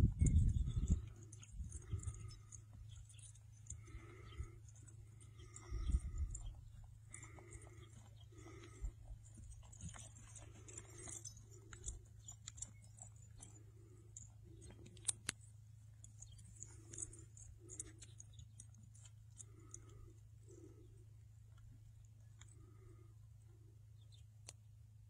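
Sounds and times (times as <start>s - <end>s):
horse hooves on dry dirt: 0.0s - 20.8s
low steady hum: 0.0s - 25.0s
small clicks: 9.7s - 20.1s.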